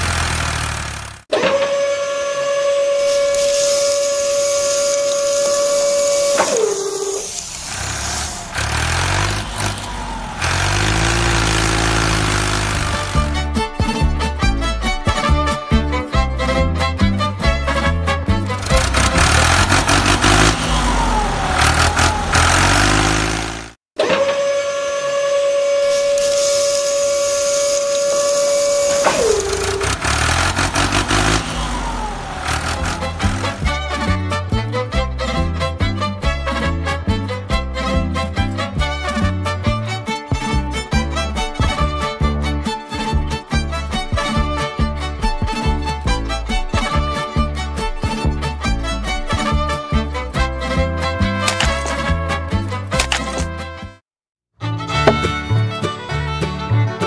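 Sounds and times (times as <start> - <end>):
low rumble with rattling and clicking: 0.0 - 1.2, 18.5 - 23.8, 29.0 - 34.0
small electric motor whining: 2.0 - 13.3, 18.6 - 33.7.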